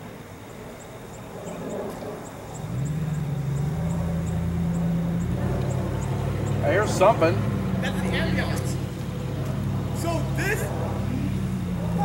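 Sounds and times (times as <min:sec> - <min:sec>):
low steady engine drone: 0:00.0 - 0:12.0
faint high ticking: 0:00.8 - 0:10.4.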